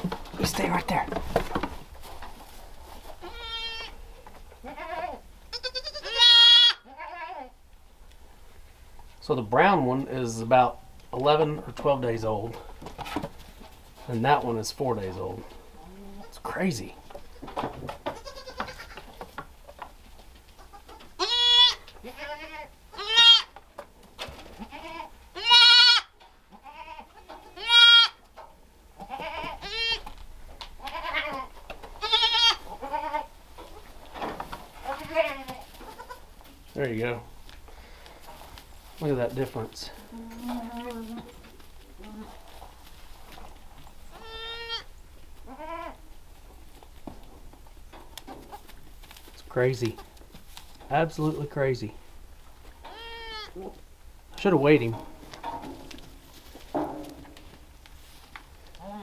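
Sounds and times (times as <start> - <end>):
goat kids bleating: 3.2 - 7.6, 17.2 - 19.2, 20.6 - 23.6, 24.6 - 28.2, 29.0 - 30.2, 30.8 - 33.9, 34.8 - 36.3, 39.9 - 41.4, 44.1 - 46.0, 52.8 - 53.8.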